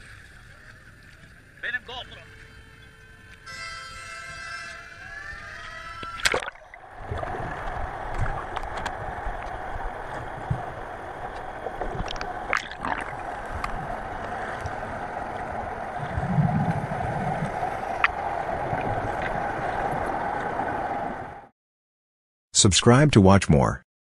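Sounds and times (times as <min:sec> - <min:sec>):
water gurgling and sloshing: 0:00.0 - 0:21.5
underwater wash: 0:05.3 - 0:21.5
splash: 0:06.0 - 0:14.8
underwater clicks: 0:06.0 - 0:15.5, 0:16.6 - 0:20.5
low rumble: 0:06.6 - 0:21.5.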